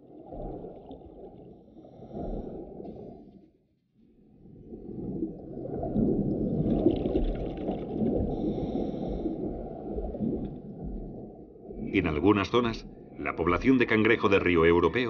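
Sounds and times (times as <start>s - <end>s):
underwater rumbling and bubbling: 0.0s - 15.0s
high water gurgle: 4.8s - 10.4s.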